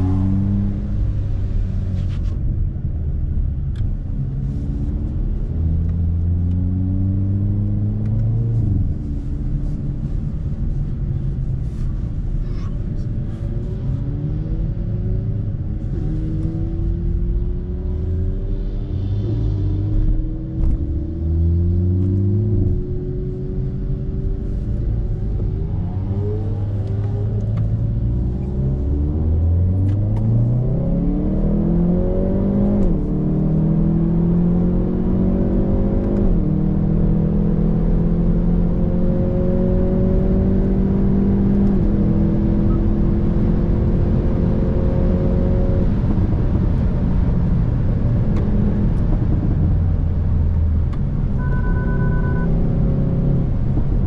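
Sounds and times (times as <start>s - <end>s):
car engine accelerating hard: 13.0s - 51.4s.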